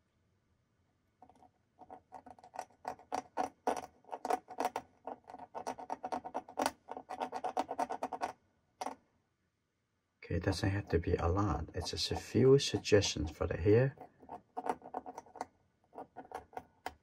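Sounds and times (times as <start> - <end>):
knife blade scratching paper: 10.7 - 15.4.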